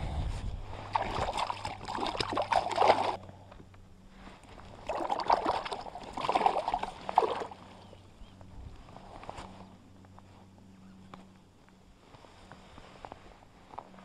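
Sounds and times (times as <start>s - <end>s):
water splashing and sloshing: 0.6s - 3.2s, 4.3s - 8.1s.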